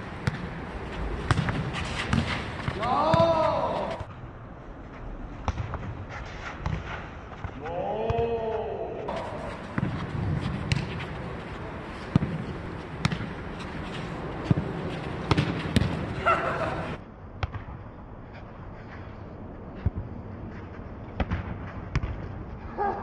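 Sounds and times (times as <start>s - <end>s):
ball thudding: 0.2s - 4.1s, 9.1s - 16.3s
person shouting: 2.8s - 4.1s, 7.6s - 9.4s.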